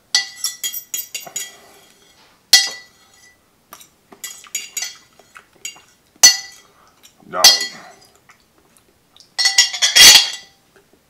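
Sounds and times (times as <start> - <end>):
fork scraping a bowl: 1.2 - 2.2.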